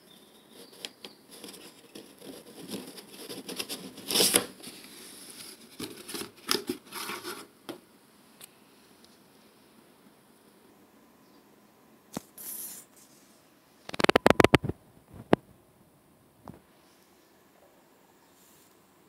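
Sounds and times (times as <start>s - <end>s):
cardboard box scraping and rustling: 0.6s - 7.5s.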